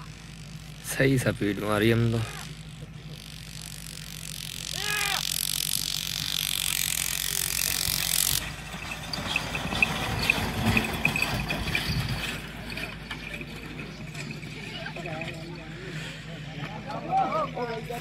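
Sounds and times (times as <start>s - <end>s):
metallic jingle and rattle: 7.8s - 15.7s
hooves and wheels on dirt: 8.3s - 18.0s.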